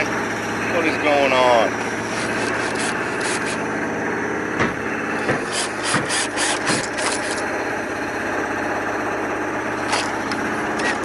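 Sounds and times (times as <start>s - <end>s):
motor running: 0.0s - 11.0s
knocks: 4.6s - 6.9s.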